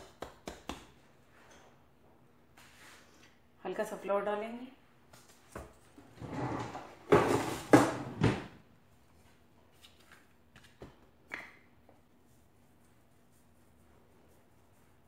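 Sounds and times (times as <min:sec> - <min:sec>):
rolling pin scraping and rumbling: 0:06.0 - 0:08.4.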